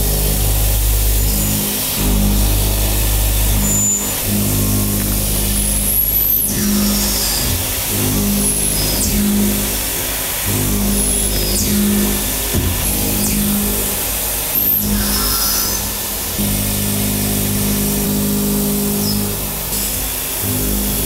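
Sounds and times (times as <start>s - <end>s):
milling machine cutting metal: 0.0s - 21.0s.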